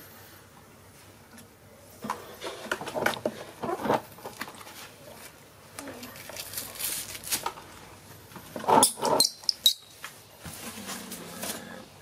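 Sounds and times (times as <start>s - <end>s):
baby monkey squeaking: 9.1s - 9.9s.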